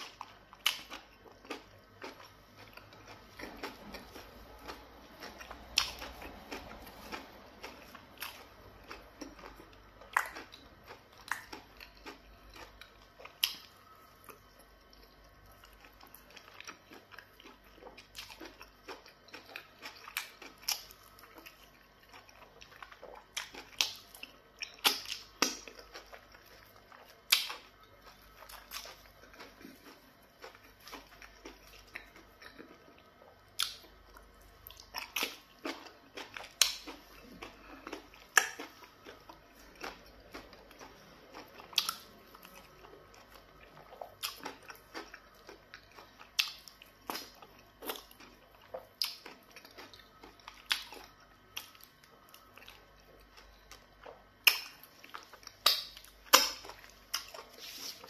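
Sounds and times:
person chewing: 0.0 - 58.0.

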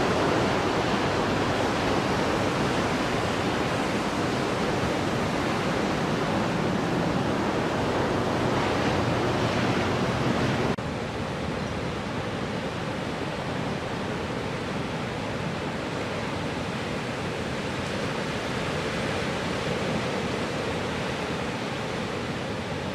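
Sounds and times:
ocean waves breaking: 0.0 - 22.9.

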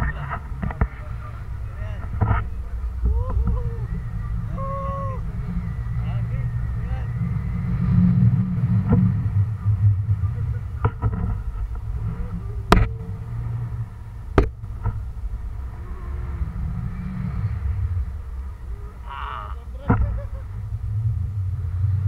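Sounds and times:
wind buffeting microphone: 0.0 - 22.0
sharp knocks: 14.4 - 15.0.

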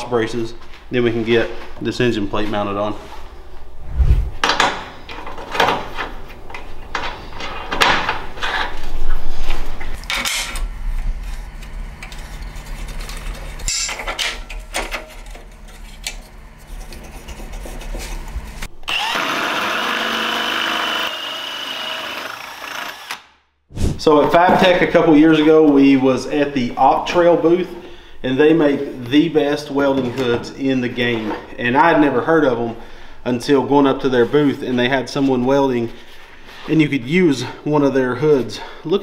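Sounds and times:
cordless drill whining: 18.8 - 23.2.

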